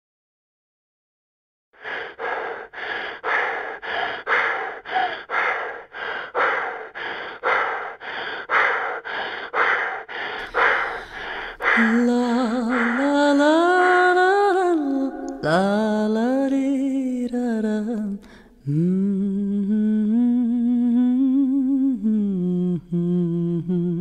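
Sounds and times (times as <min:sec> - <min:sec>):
person panting: 0:01.8 - 0:14.9
person singing: 0:10.4 - 0:24.0.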